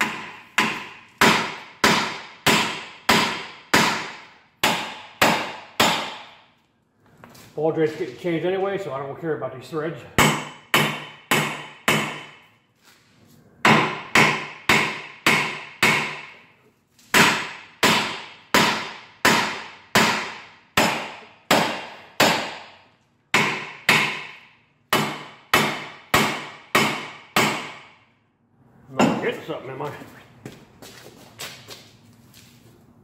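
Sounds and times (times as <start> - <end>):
hammer blows ringing on steel: 0.0 - 6.4, 10.2 - 12.4, 13.6 - 16.4, 17.2 - 28.0.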